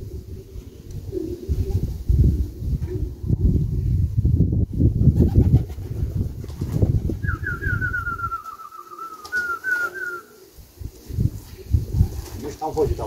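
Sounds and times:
pigeons cooing: 0.0 - 4.0, 5.0 - 13.0
low buffeting noise: 0.0 - 8.9
bird whistling high notes: 7.2 - 10.3.

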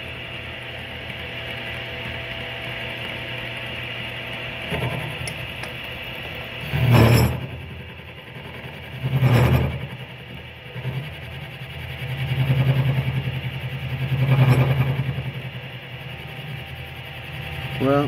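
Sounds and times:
milling machine cutting steel: 0.1 - 18.0.

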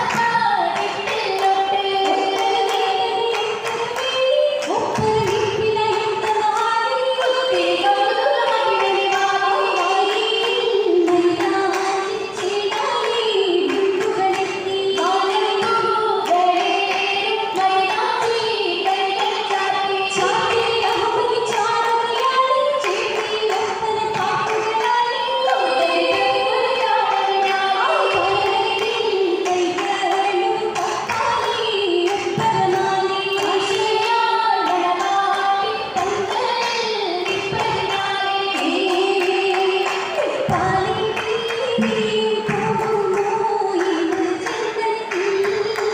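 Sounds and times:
sharp hand claps: 0.0 - 7.6, 8.5 - 45.9
girls singing in unison: 0.0 - 45.9.

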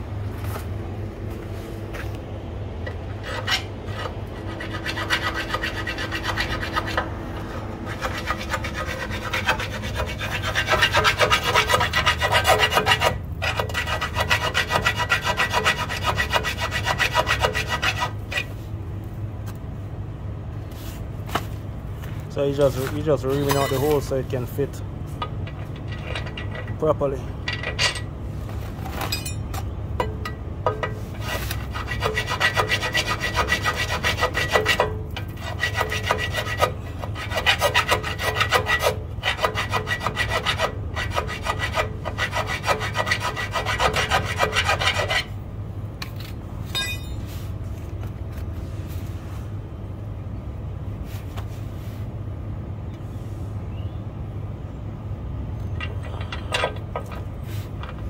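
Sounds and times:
steady low hum: 0.0 - 58.0
hand file rasping metal: 3.2 - 18.5, 31.1 - 45.3.

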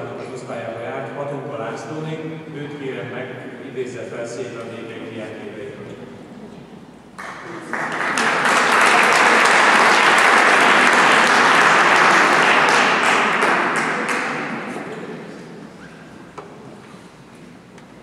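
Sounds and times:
audience applauding: 7.2 - 15.2.

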